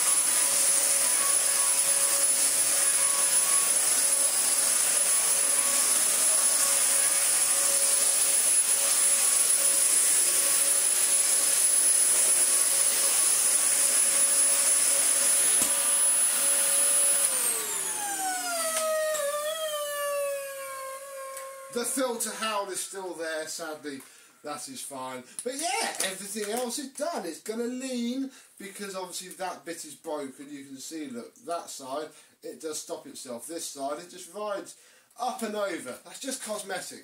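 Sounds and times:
vacuum cleaner whining: 0:00.0 - 0:23.1.

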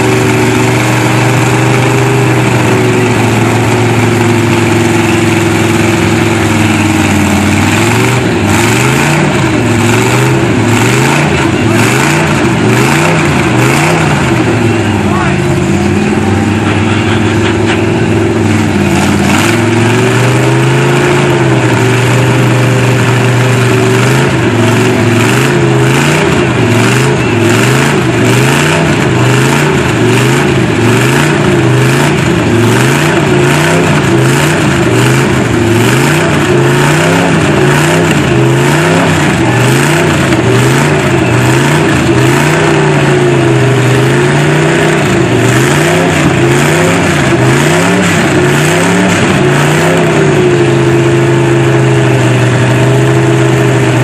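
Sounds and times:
truck engine revving hard: 0:00.0 - 0:54.0.

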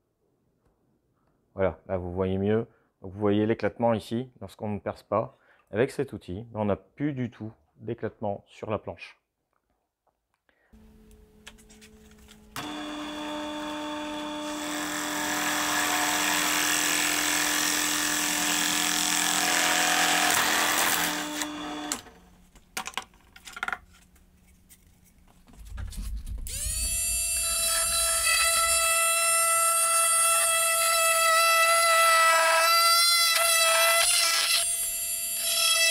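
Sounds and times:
drill press boring plastic pipe: 0:12.5 - 0:22.2, 0:26.5 - 0:35.9
oscillating multi-tool buzzing: 0:26.5 - 0:35.9.

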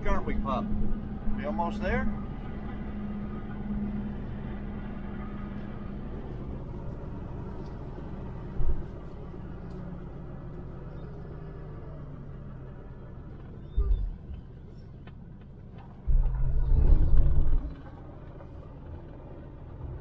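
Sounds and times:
engine and road hum in car: 0:00.0 - 0:20.0
short low thump: 0:16.1 - 0:17.8.

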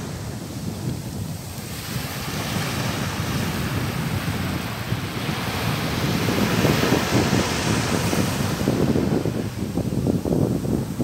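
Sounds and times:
surf hissing on sand: 0:00.0 - 0:11.0
wind rumbling on microphone: 0:00.0 - 0:11.0.

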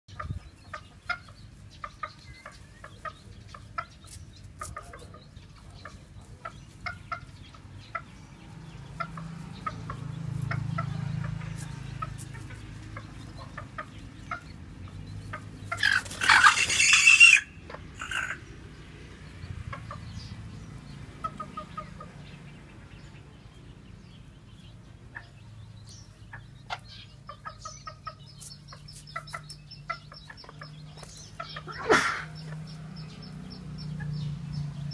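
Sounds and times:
hen clucking: 0:00.1 - 0:22.4, 0:24.2 - 0:34.9
loud hen call: 0:15.7 - 0:18.4.

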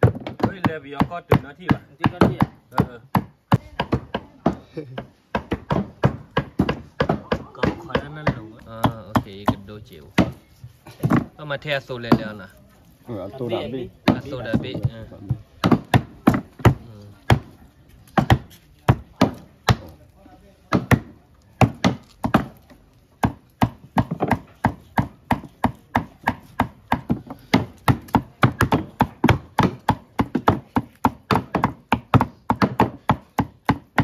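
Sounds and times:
knife chopping on wooden board: 0:23.2 - 0:34.0.

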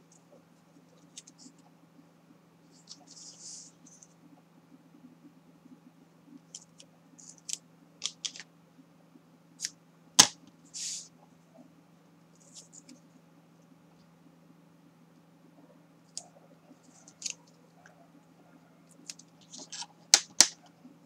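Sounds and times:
tape sharp snap: 0:09.6 - 0:10.4, 0:20.1 - 0:20.6
tape pulled off roll crackling: 0:19.5 - 0:20.6.

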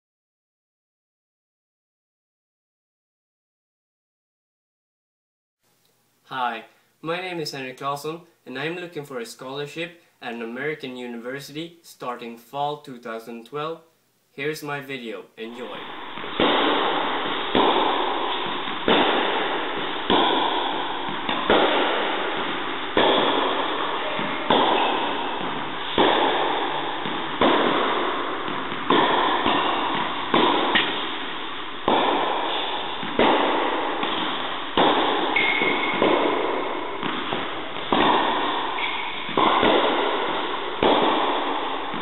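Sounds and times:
racket striking tennis ball: 0:15.5 - 0:42.0.

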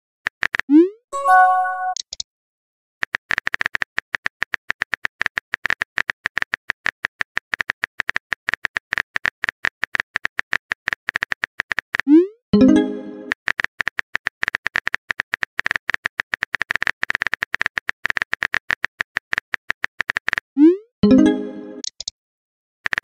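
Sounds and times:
multi-note message chime: 0:01.2 - 0:02.0, 0:12.6 - 0:13.3, 0:21.0 - 0:21.8.

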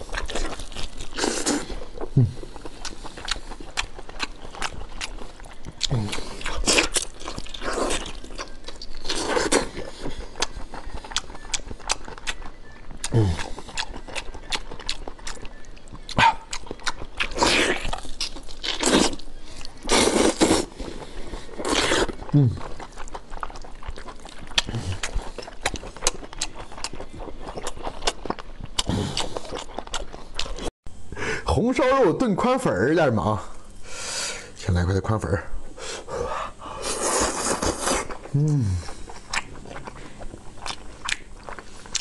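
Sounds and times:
wet biting and chewing: 0:00.0 - 0:20.8, 0:21.5 - 0:30.7, 0:36.8 - 0:42.0
muffled hum with mouth full: 0:00.0 - 0:42.0.

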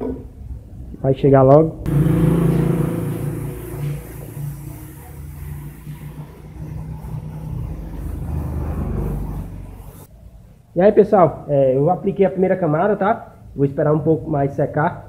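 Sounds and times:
air compressor humming: 0:01.9 - 0:10.1
spray gun hissing: 0:01.9 - 0:10.1.

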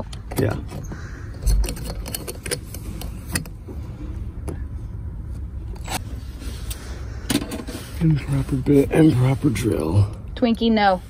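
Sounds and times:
hardware clicks and metallic clinks: 0:00.0 - 0:03.6.

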